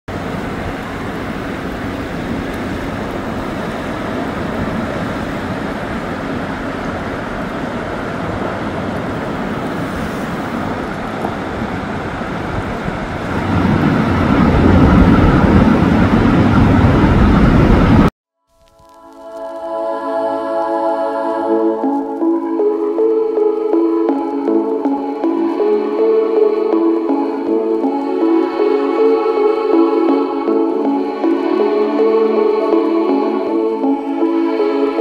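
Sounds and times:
steady outdoor rushing noise: 0.1s - 18.1s.

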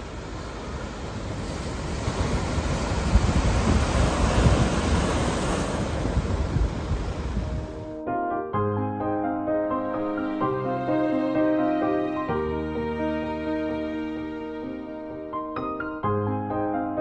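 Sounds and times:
surf washing over pebbles: 0.0s - 7.7s
wind rumbling on microphone: 0.1s - 8.0s.

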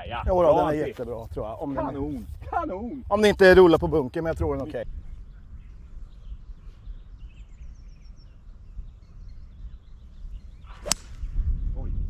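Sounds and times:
wind rumbling on microphone: 0.0s - 12.0s
faint bird chirps: 4.9s - 12.0s
golf club striking ball: 10.8s - 11.2s.

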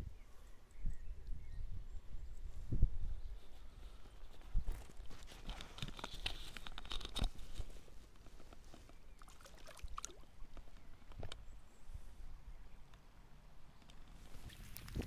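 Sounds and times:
water splashing in stream: 9.2s - 10.6s.

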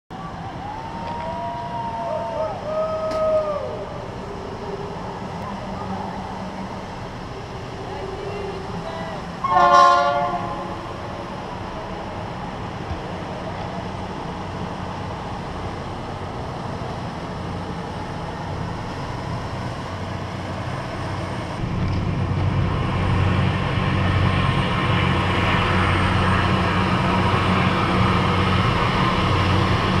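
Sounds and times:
rushing noise: 0.1s - 30.0s
low motor hum: 10.2s - 30.0s.

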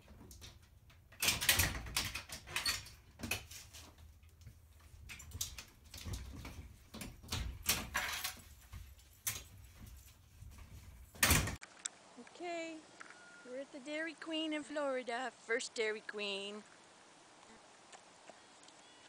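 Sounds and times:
glass door rattling: 0.0s - 11.6s.

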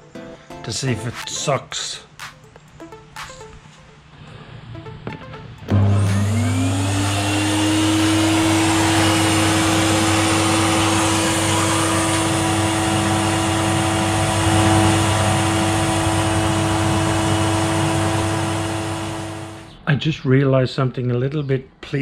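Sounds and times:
shop vacuum motor running: 5.6s - 19.7s.

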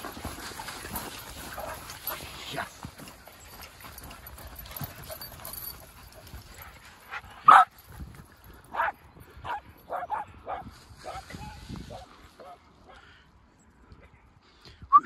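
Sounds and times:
dogs barking: 7.4s - 7.7s, 8.7s - 11.2s.

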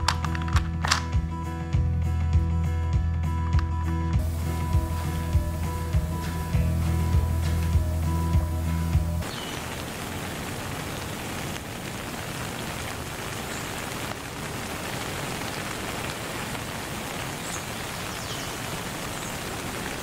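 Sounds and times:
steady rain falling: 4.2s - 20.0s.

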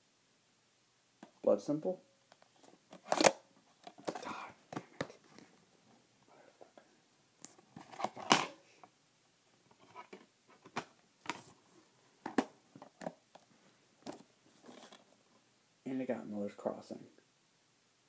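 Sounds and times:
soft rustling: 9.6s - 15.4s
plastic cases clicking and knocking: 12.2s - 13.4s.

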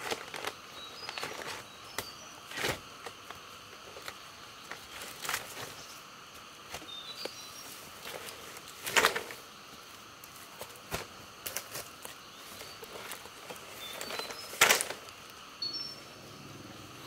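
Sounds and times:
insects chirring: 0.0s - 17.0s
bird chirps: 6.8s - 7.7s, 15.6s - 16.8s.

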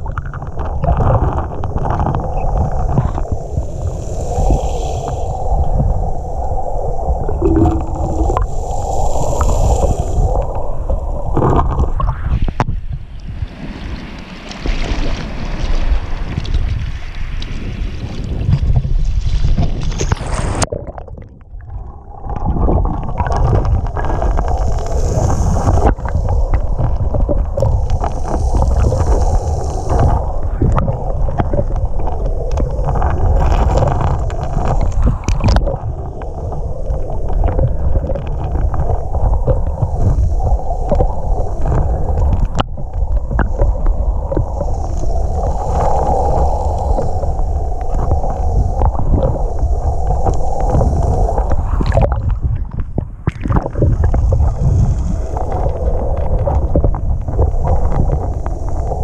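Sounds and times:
underwater rushing and gurgling: 0.0s - 59.0s
small waves splashing: 13.0s - 21.0s.

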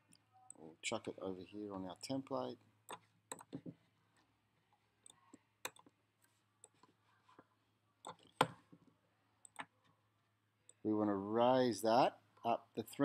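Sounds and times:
computer mouse clicking: 5.0s - 5.9s, 9.4s - 9.7s.

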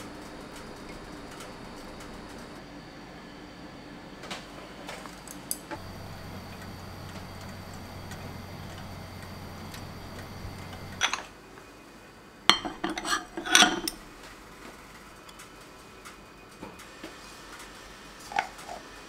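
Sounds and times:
electrical hum and whine: 0.0s - 15.0s
ceramic pot clinking: 12.5s - 14.0s.

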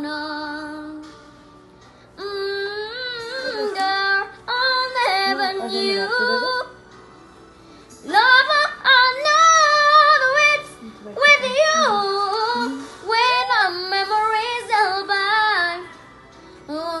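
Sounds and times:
girl singing unaccompanied: 2.2s - 6.8s, 8.0s - 16.0s.

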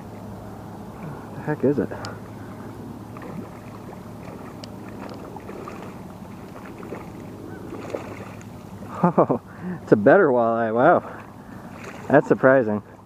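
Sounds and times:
water: 0.0s - 13.0s
fish splashing: 2.4s - 9.0s, 11.4s - 12.3s.

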